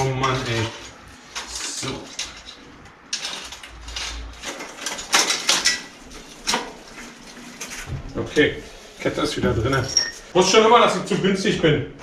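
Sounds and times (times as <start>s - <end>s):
bicycle chain clicking and rattling: 0.0s - 10.4s.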